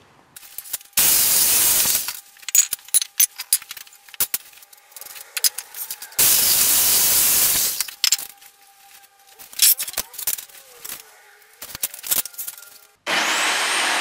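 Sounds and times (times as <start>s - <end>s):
wooden pieces clattering: 0.4s - 13.0s
electric saw cutting wood: 4.7s - 7.9s, 10.4s - 14.0s.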